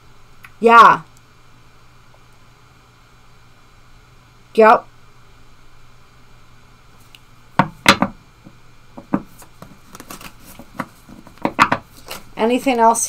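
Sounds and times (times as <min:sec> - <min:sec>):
cards tapping and clicking: 0:09.0 - 0:12.2.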